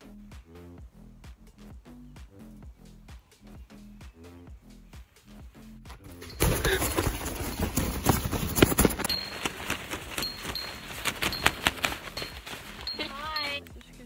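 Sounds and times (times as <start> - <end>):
hands slapping tent fabric: 6.2 - 14.0.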